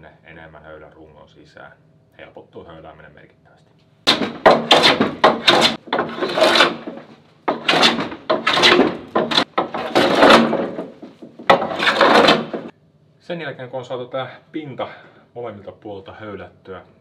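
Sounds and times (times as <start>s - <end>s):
hand plane shaving wood: 4.1s - 12.7s.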